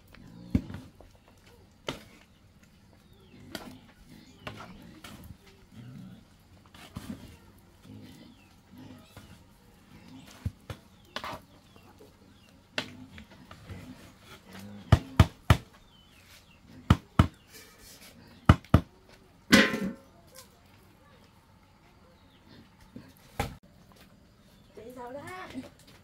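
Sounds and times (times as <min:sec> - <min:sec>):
wooden paddle knocking metal pot: 0:19.5 - 0:20.0.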